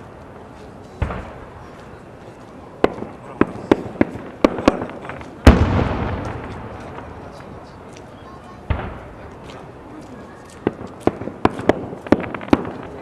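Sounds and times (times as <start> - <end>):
firework bangs: 1.0 - 2.2, 2.8 - 9.8, 10.6 - 13.0
deep firework boom with echo: 2.9 - 7.4, 8.7 - 9.3.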